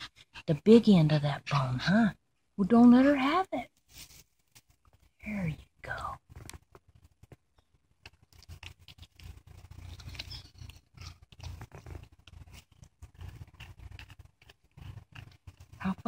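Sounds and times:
teeth clicking on bone: 0:06.3 - 0:16.0
dog gnawing a bone: 0:06.4 - 0:16.0
small dog growling: 0:09.6 - 0:16.0.

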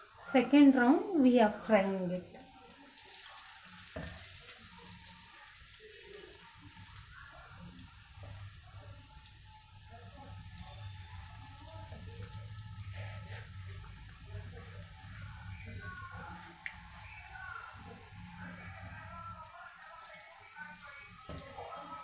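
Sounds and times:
food deep-frying in oil: 0:00.0 - 0:22.0.

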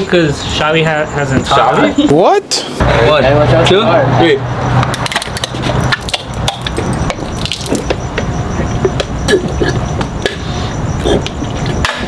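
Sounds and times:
liquid gushing from cans: 0:05.0 - 0:07.9.

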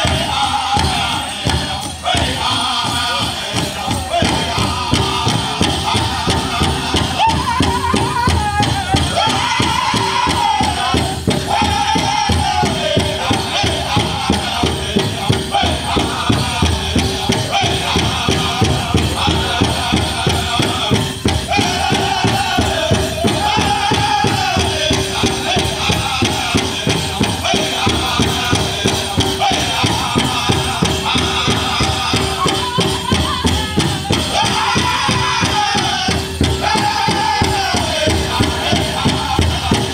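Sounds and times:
big drum fast beat: 0:00.0 - 0:39.9
drum group singing: 0:00.0 - 0:39.9.

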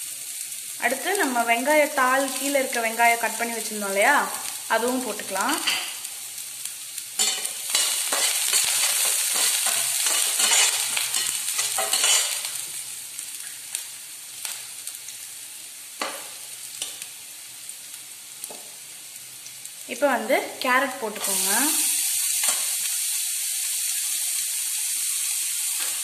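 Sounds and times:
onion and garlic sizzling in oil: 0:00.0 - 0:26.0
spatula scraping a pan: 0:07.2 - 0:12.6.

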